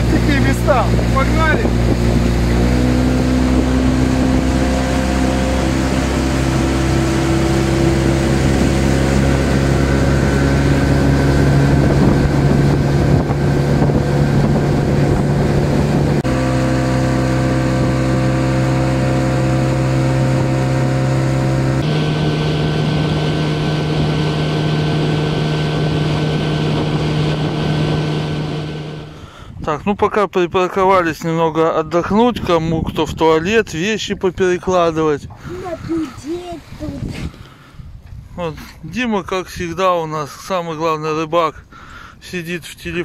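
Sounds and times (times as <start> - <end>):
outboard motor running: 0.0 - 29.6, 35.2 - 38.8
water rushing past hull: 0.0 - 29.6, 32.4 - 43.0
wind on microphone: 0.0 - 30.0, 31.8 - 39.8.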